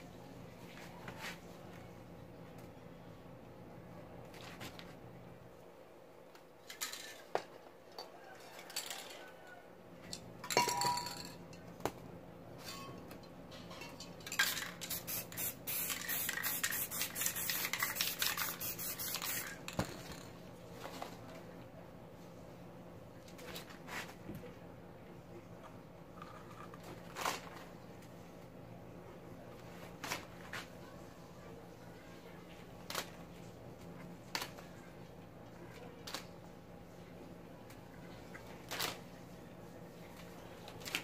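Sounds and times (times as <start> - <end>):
spray cans clinking: 13.7 - 20.0
spray can rattling and hissing: 14.2 - 20.3.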